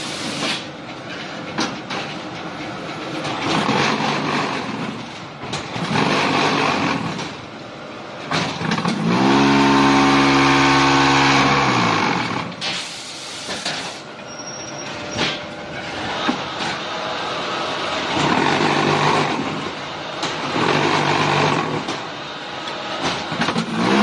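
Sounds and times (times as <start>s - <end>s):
machine hissing and clattering: 0.0s - 2.4s, 12.4s - 14.1s.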